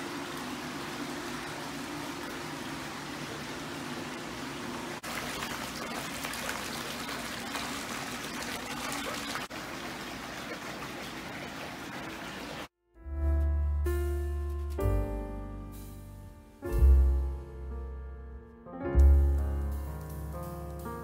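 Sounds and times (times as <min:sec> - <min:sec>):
water flowing into a bath: 0:00.0 - 0:12.7.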